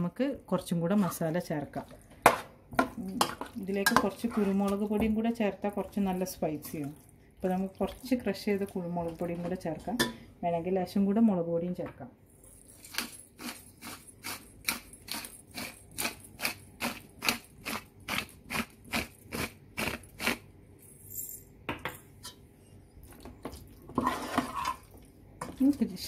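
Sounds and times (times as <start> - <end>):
metal spoon scraping a pot: 3.2 - 4.8, 24.0 - 25.6.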